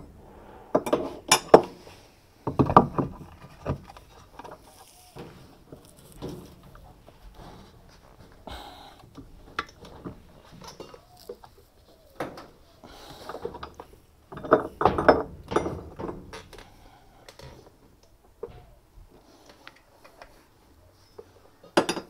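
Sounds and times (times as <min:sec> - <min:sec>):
metal tools clinking on nut: 0:13.3 - 0:16.6.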